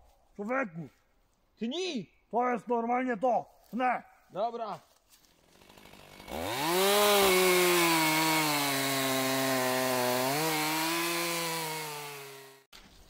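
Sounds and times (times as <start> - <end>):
chainsaw engine revving: 5.4 - 12.7.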